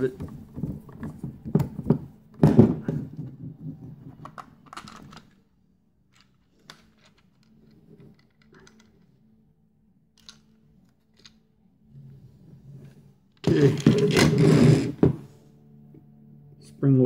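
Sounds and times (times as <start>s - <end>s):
faint steady hum: 0.0s - 17.0s
plastic case clicks and rattles: 4.2s - 5.3s.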